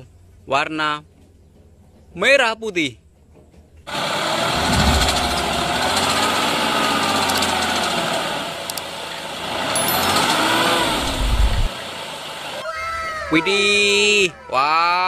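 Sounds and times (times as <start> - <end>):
hydraulic tipper raising: 3.9 - 11.8
truck engine running: 3.9 - 12.6.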